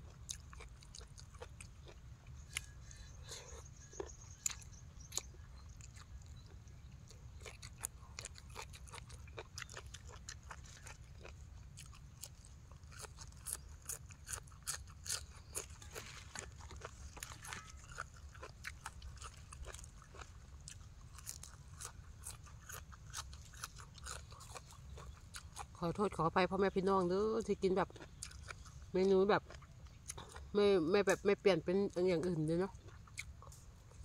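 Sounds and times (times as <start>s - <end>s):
chewing: 0.0s - 34.0s
crisp crunching bites: 7.4s - 25.7s.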